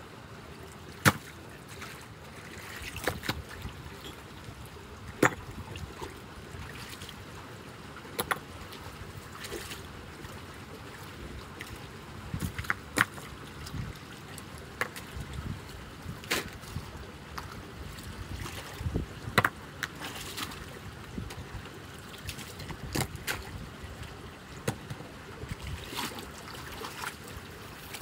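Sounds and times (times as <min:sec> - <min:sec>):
floodwater rushing through drain: 0:00.3 - 0:28.0
splashes in water: 0:25.5 - 0:28.0.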